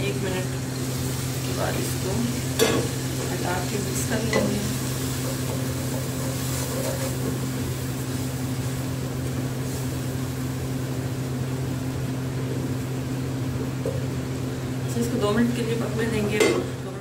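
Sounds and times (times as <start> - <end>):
low machine hum: 0.0 - 17.0
wooden spoon scraping a pot: 4.3 - 7.4.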